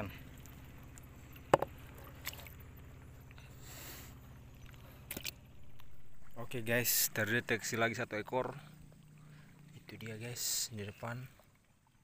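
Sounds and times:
steady low hum: 0.0s - 12.0s
fish knocking on container: 1.5s - 1.8s.

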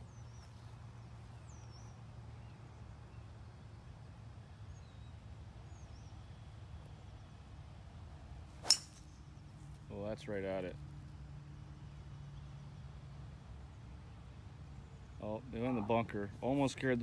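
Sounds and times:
low steady outdoor hum: 0.0s - 17.0s
golf club striking ball: 8.6s - 9.2s.

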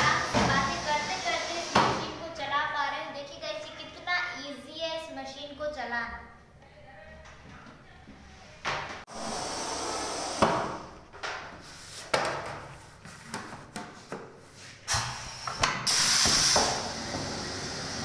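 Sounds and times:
air hiss bursts: 0.0s - 2.2s, 9.1s - 11.0s, 14.6s - 18.0s.

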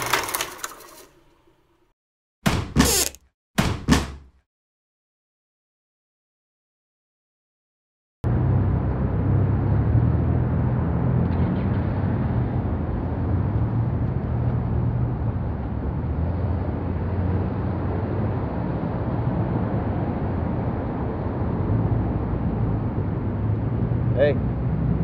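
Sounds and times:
traffic rumble: 8.3s - 25.0s.

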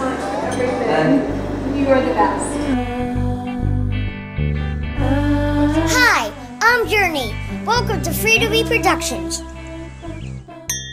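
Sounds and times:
background music with bass line: 2.5s - 10.8s.

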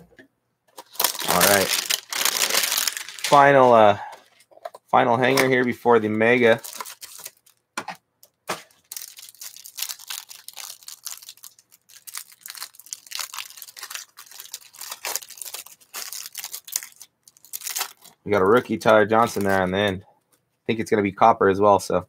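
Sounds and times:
plastic wrapper tearing and crinkling: 0.8s - 4.0s, 5.2s - 7.6s, 8.5s - 19.9s.

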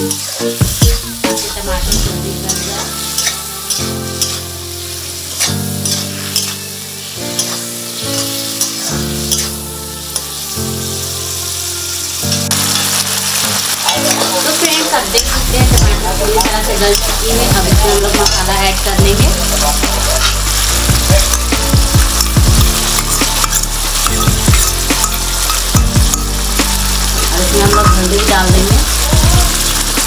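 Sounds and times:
background music of sustained chords: 0.0s - 30.0s
onions sizzling in hot oil: 0.0s - 30.0s
metal spatula scraping pan: 1.3s - 4.5s, 5.2s - 6.7s, 7.3s - 9.6s, 13.6s - 18.9s, 19.5s - 26.3s.

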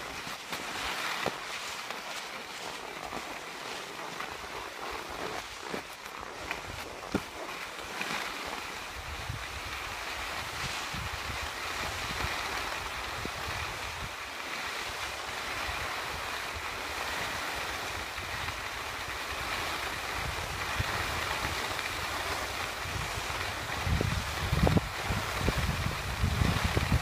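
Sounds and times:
skis sliding over snow: 0.0s - 27.0s
wind buffeting microphone: 8.9s - 14.2s, 19.9s - 27.0s.

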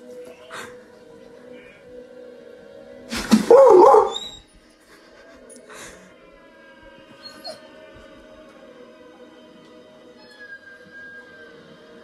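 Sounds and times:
dog crying: 3.3s - 4.5s, 7.2s - 7.7s.

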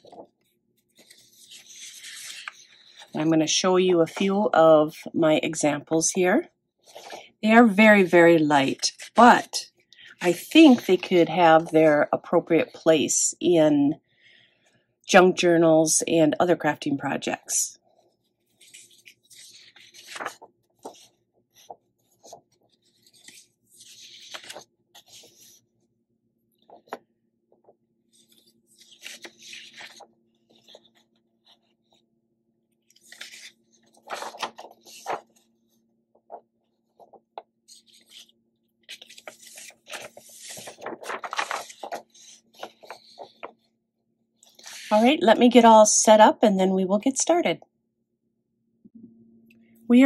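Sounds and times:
paper sheets rustling: 0.0s - 0.4s, 1.0s - 3.3s, 6.8s - 7.2s, 17.8s - 25.6s, 26.6s - 27.0s, 28.2s - 32.0s, 32.9s - 38.3s, 38.9s - 43.7s, 44.4s - 45.2s.

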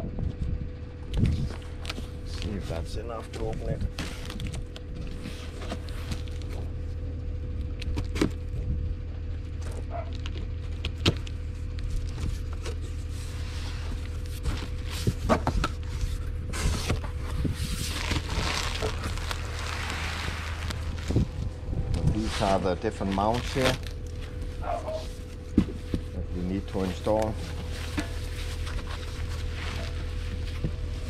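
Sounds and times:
steady low hum: 0.0s - 31.0s
cardboard box flaps scraping: 12.3s - 22.6s.

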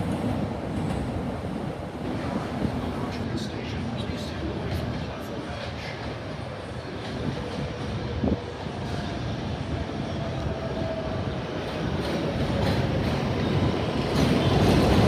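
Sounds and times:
train wheels on rails: 0.0s - 3.3s, 4.1s - 15.0s.

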